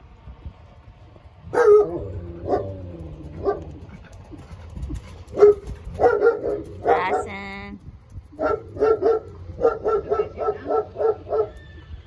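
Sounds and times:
dog barking: 1.5 - 2.8, 3.4 - 3.8, 5.3 - 7.3, 8.4 - 11.6.

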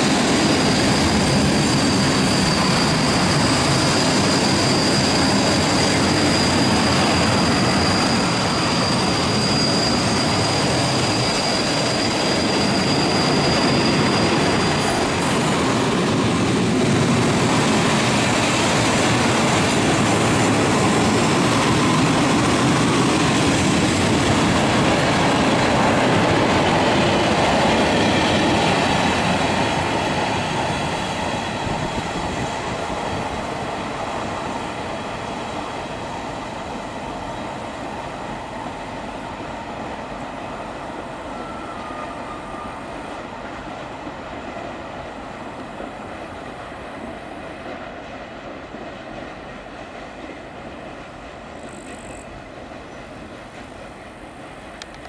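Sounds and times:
high wheel squeal: 0.0 - 33.6
train wheels rolling on rails: 0.0 - 55.0.

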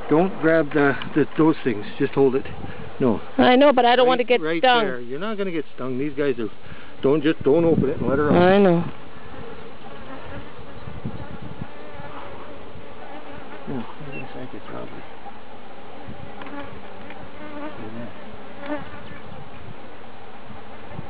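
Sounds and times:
single bee buzzing past: 8.3 - 14.4, 16.0 - 19.2
bees buzzing: 8.3 - 21.0.

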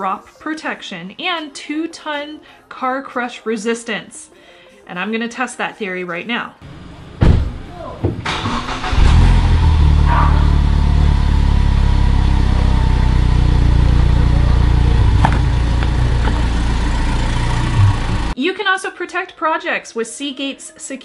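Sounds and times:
car engine starting and running: 8.2 - 18.4.

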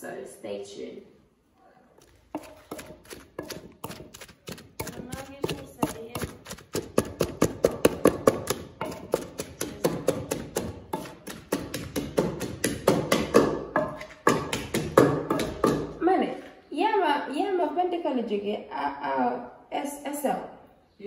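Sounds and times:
wooden pestle pounding in mortar: 2.1 - 16.0.

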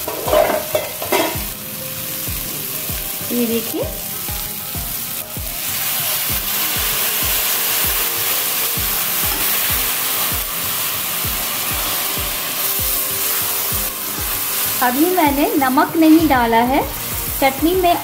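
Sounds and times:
metal spatula stirring: 0.0 - 1.4
background music with beat: 0.0 - 18.0
food sizzling in pan: 0.0 - 18.0.

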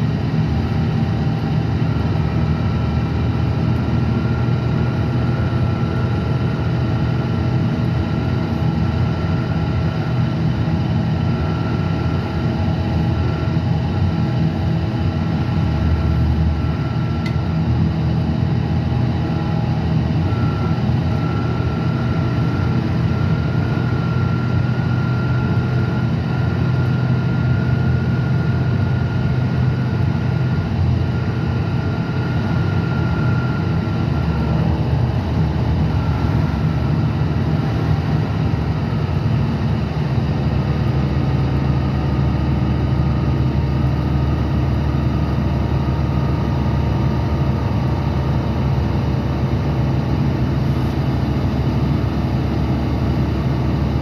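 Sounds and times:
high whine: 0.0 - 40.6
diesel bus engine drone: 0.0 - 54.0
road and tyre noise: 0.0 - 54.0.

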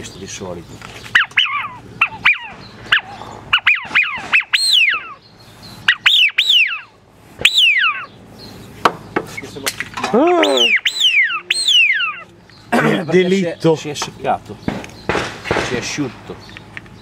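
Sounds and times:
duck call whistles: 1.2 - 5.2, 5.9 - 8.1, 10.4 - 12.2.

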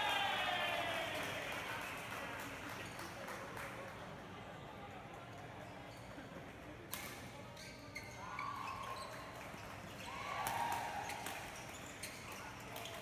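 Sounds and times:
shoes squeaking on court: 7.4 - 10.1, 11.0 - 13.0.

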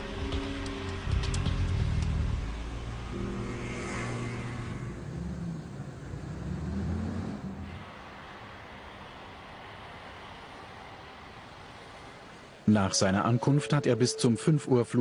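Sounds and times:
rush of passing noise: 0.3 - 13.6
car engine accelerating: 0.8 - 7.9.

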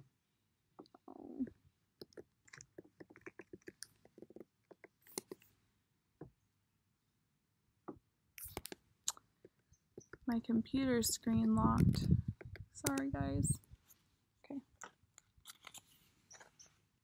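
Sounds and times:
faint clicks and taps: 2.0 - 5.5, 11.5 - 13.7.

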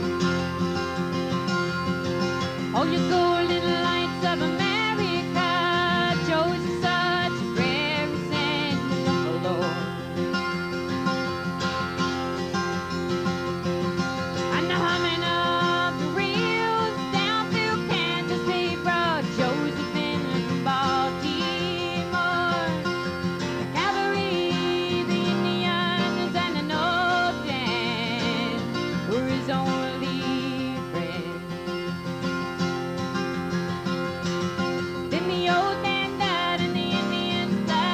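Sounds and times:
strummed acoustic guitar: 0.0 - 37.9
woman singing: 2.6 - 10.1, 14.4 - 31.6, 35.1 - 37.9.

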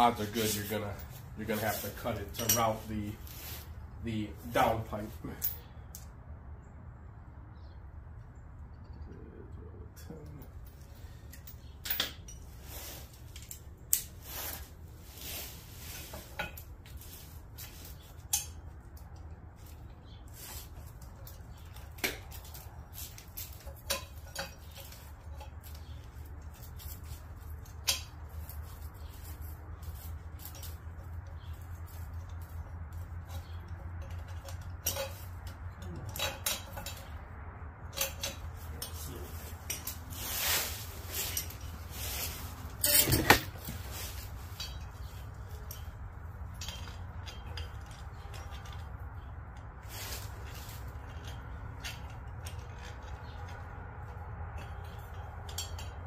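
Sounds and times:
metal tools clinking: 0.0 - 6.0, 10.0 - 56.0
metallic clank: 42.3 - 49.3.

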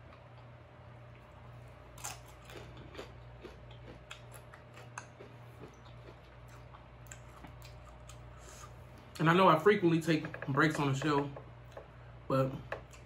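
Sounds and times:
crunchy chewing: 0.0 - 9.0.

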